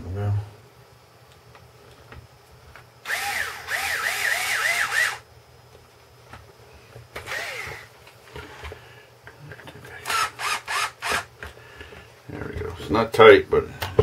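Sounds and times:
electric screwdriver motor whine: 3.0s - 5.2s, 7.2s - 7.9s, 10.0s - 11.3s.

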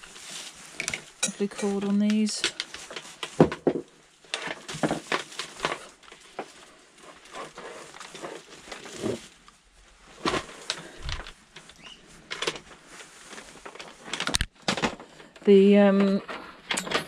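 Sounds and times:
power cord rustling: 4.2s - 17.0s.

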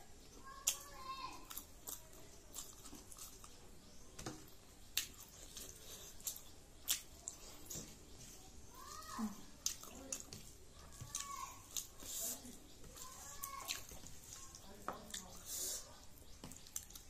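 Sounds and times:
chewing clicks: 4.9s - 7.4s, 9.6s - 12.0s.

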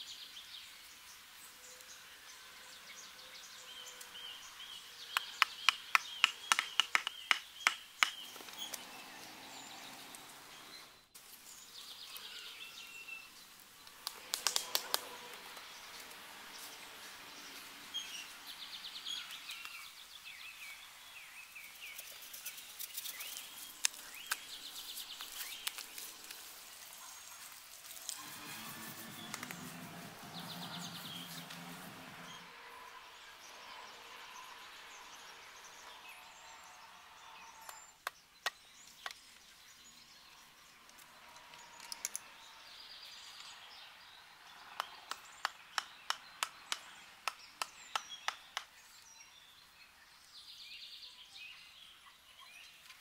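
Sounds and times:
birds chirping: 0.0s - 53.0s
bamboo slats clacking: 5.4s - 8.6s.

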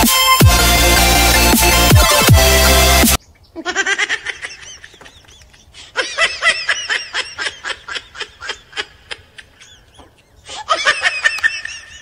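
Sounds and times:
high-pitched giggling: 3.5s - 12.0s.

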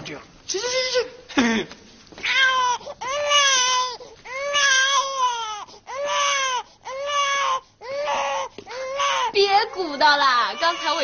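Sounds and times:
toy doll crying: 2.3s - 11.0s.

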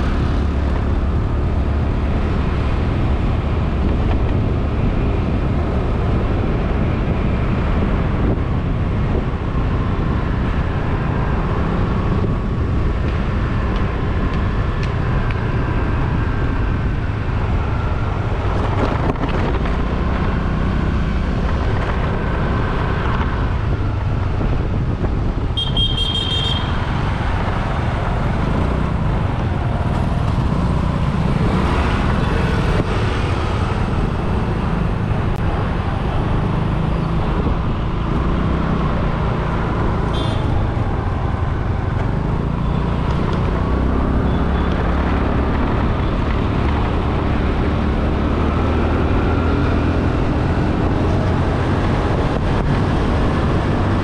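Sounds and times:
wind and road noise: 0.0s - 54.0s
high-pitched vehicle horn honking: 25.6s - 26.8s, 40.1s - 40.5s.

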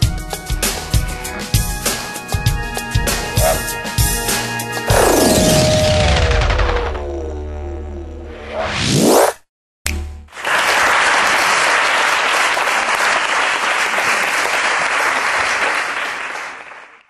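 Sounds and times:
music: 0.0s - 6.5s
audience applauding: 10.3s - 17.0s.

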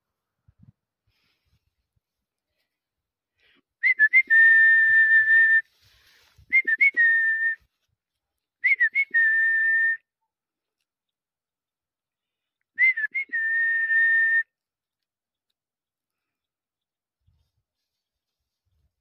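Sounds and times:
person whistling: 3.8s - 5.7s, 6.4s - 7.7s, 8.6s - 10.1s, 12.8s - 14.6s.

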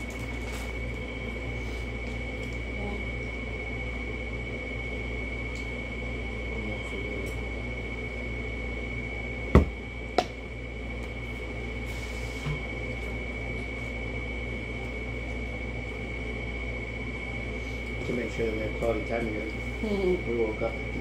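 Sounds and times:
faint high whine: 0.0s - 21.0s
steady low hum: 0.0s - 21.0s
knocks on wooden table: 9.6s - 10.3s.

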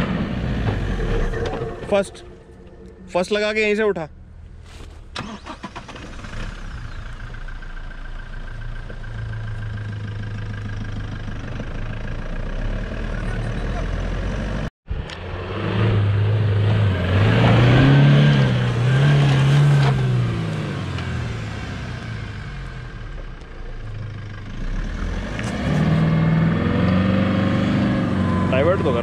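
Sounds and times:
engine revving hard: 12.5s - 22.4s, 24.6s - 29.0s.

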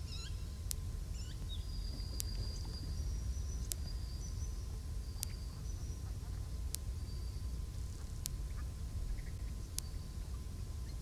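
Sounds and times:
sharp tick: 2.2s - 2.4s, 3.6s - 4.0s, 5.2s - 5.4s.

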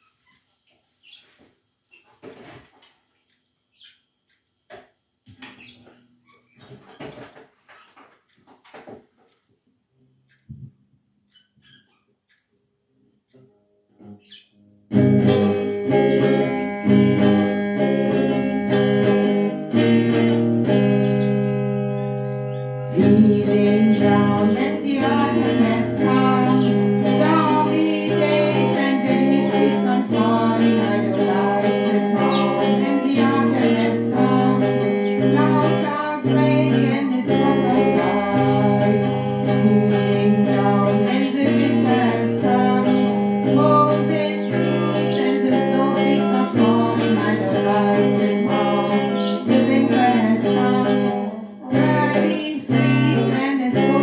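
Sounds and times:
electric guitar: 13.4s - 54.0s
woman singing: 19.7s - 20.8s, 22.9s - 54.0s.

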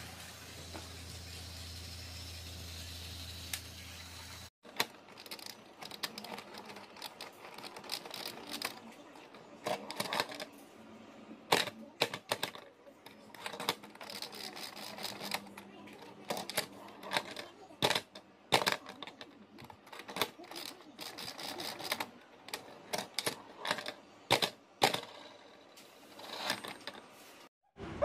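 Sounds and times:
toy train humming: 0.0s - 4.5s, 13.3s - 17.7s, 20.2s - 25.0s.

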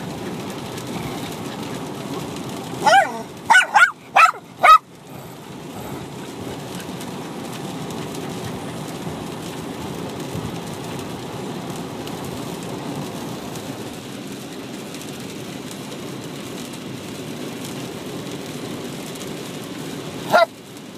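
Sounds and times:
car road noise: 0.0s - 20.8s
dog barking high and sharp: 2.8s - 4.9s, 20.3s - 20.5s.

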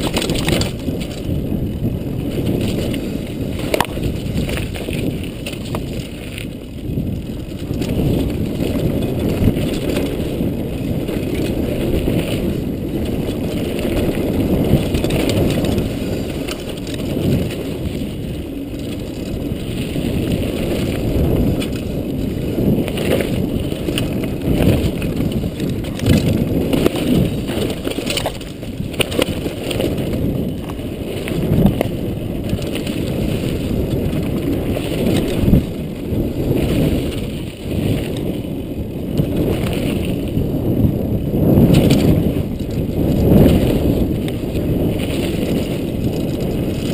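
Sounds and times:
bike knocking and rattling: 0.0s - 46.9s
knobby tyre rumble: 0.0s - 46.9s
wind buffeting: 0.0s - 46.9s.

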